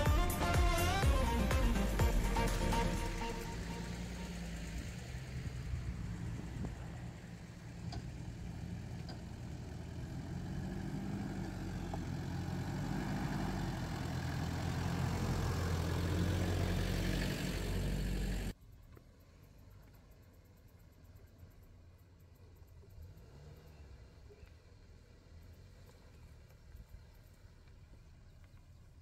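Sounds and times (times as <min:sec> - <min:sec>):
diesel engine running low revs: 0:00.0 - 0:18.6.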